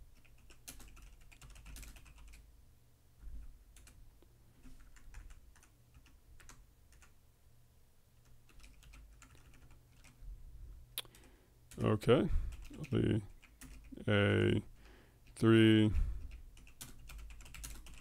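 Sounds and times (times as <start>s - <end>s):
computer keyboard typing: 0.1s - 2.4s, 4.7s - 7.2s, 8.2s - 10.2s, 12.5s - 14.0s, 16.2s - 18.0s.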